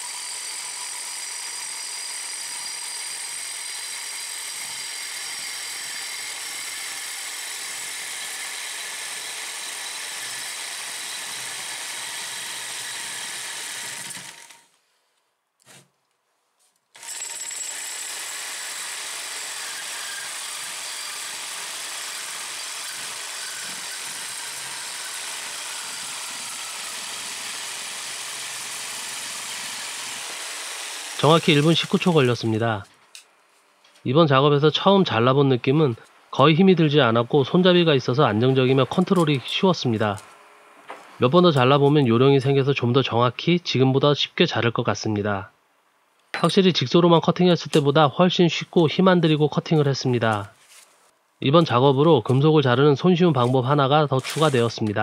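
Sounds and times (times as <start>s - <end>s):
jigsaw cutting steel tube: 0.0s - 14.8s, 16.9s - 33.2s, 37.2s - 40.2s, 53.3s - 55.0s
saw blade rattling: 53.3s - 55.0s.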